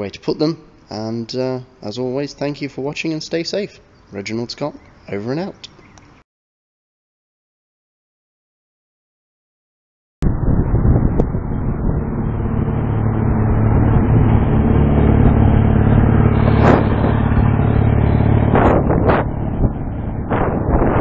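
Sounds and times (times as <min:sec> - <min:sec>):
road traffic noise: 0:00.0 - 0:06.2, 0:10.6 - 0:21.0
motorcycle engine running: 0:10.3 - 0:21.0.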